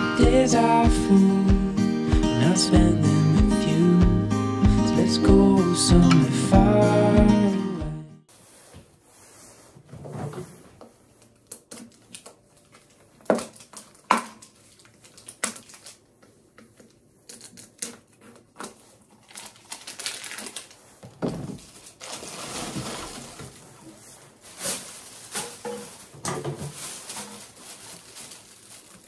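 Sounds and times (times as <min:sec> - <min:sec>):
plastic packaging crinkling: 0:11.2 - 0:29.0.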